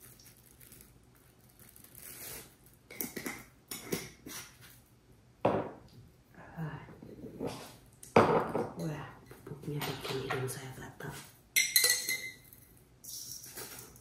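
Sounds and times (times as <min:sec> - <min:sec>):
plastic bag crinkling: 0:00.0 - 0:02.9.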